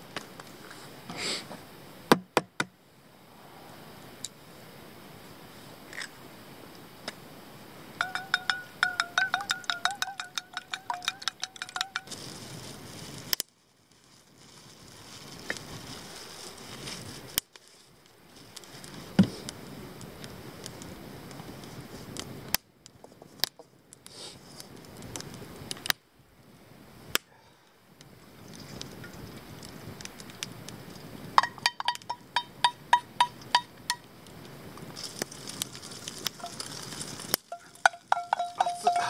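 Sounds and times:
campfire cooking hiss: 0.0 - 2.1, 2.7 - 39.0
eggs beaten in metal bowl: 8.0 - 12.0
utensils knocking against pan: 8.0 - 12.1, 37.6 - 39.0.

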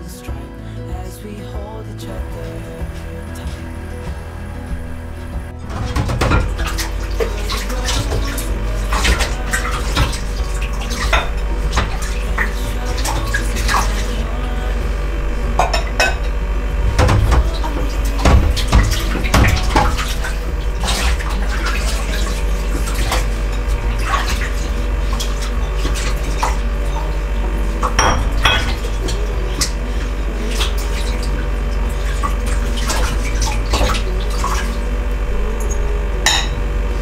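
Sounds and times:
soapy water sloshing: 0.0 - 37.0
steady low hum: 0.0 - 37.0
dishes clinking in sink: 5.7 - 14.3, 15.5 - 34.8, 35.5 - 36.7.

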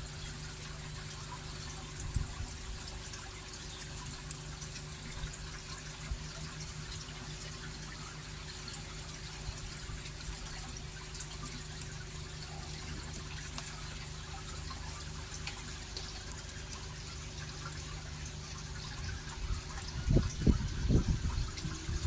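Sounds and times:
water trickling and dripping: 0.0 - 22.0.

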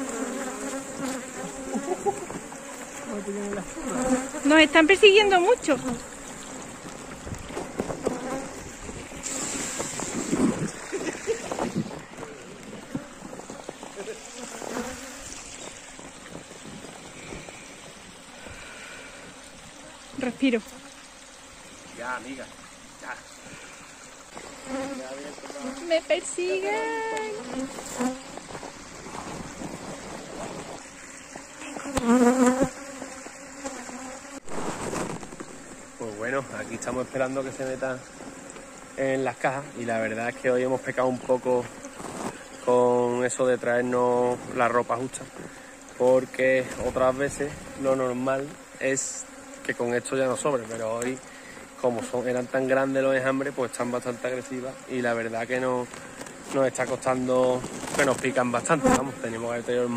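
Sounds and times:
honeybees buzzing: 0.0 - 59.9.

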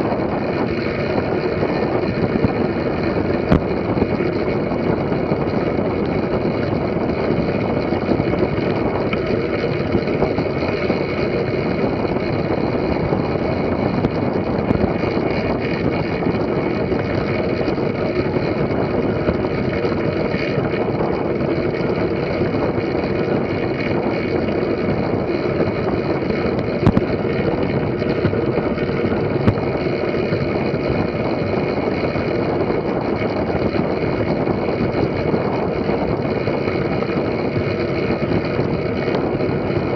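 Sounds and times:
bike tyres rolling on wooden boards: 0.0 - 39.9.

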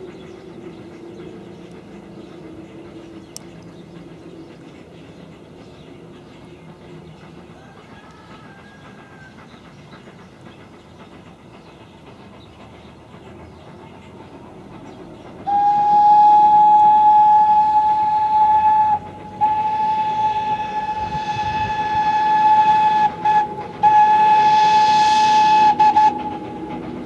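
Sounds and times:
train running on track: 0.0 - 27.0
steam whistle blasts: 15.4 - 27.0.

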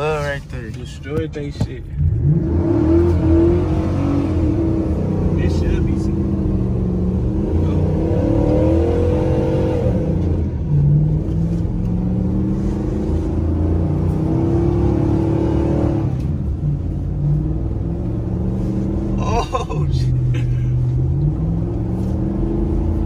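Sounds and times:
engine revving hard: 2.1 - 11.3.

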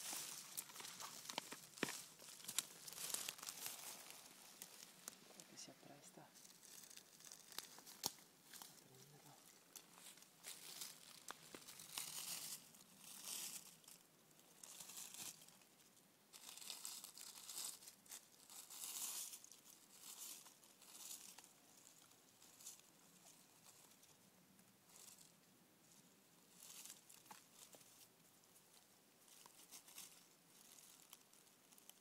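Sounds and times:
hands rustling dry leaves: 0.0 - 32.0.

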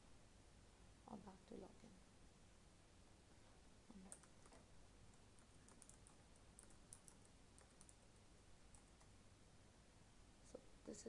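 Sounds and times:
keyboard typing: 3.9 - 8.0, 8.7 - 9.1.

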